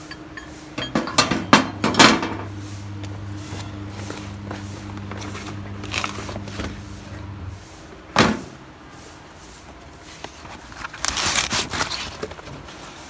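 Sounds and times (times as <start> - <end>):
steady low hum: 0.0 - 7.8
plastic sacking crinkling: 10.7 - 12.6.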